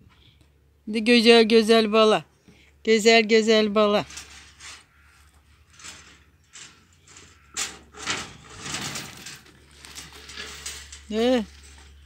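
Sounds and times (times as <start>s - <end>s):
rustling and scraping: 3.8s - 12.0s.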